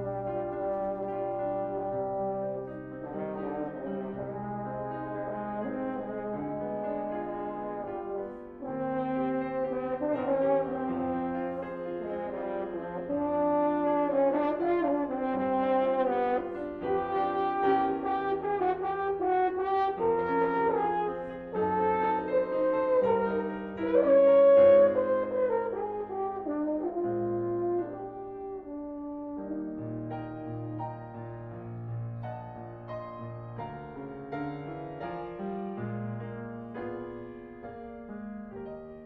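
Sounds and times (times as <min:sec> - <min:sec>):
french horn melody: 0:00.0 - 0:39.0
piano accompaniment: 0:00.0 - 0:39.0.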